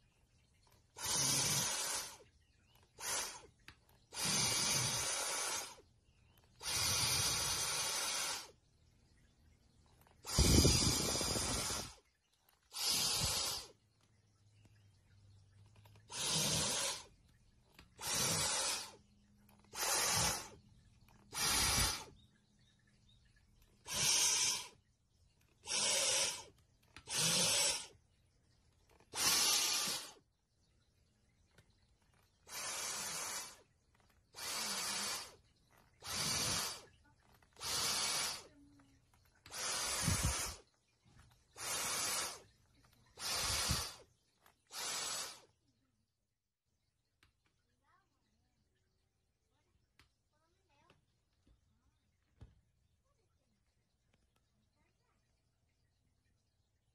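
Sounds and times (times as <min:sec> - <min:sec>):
cat hissing: 0:01.0 - 0:02.2, 0:10.2 - 0:12.0, 0:12.7 - 0:13.7, 0:16.1 - 0:17.1, 0:18.0 - 0:19.0, 0:19.7 - 0:20.6, 0:21.3 - 0:22.1, 0:23.9 - 0:24.8, 0:25.6 - 0:27.9, 0:29.1 - 0:30.2, 0:32.5 - 0:33.6, 0:34.3 - 0:35.4, 0:36.0 - 0:36.9, 0:37.5 - 0:38.5, 0:39.4 - 0:40.6, 0:41.6 - 0:42.4, 0:43.2 - 0:44.0, 0:44.7 - 0:45.5.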